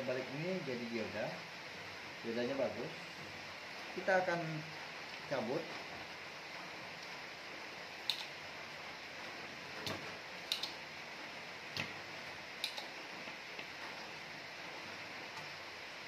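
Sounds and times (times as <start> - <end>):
steady hiss: 0.0 - 16.0
desoldering pump clicking: 9.8 - 10.8, 12.6 - 13.0.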